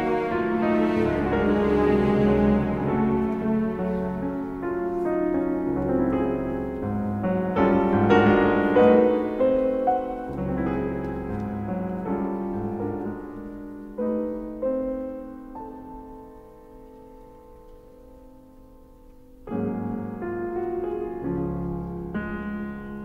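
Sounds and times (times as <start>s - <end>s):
slow piano music: 0.0s - 23.0s.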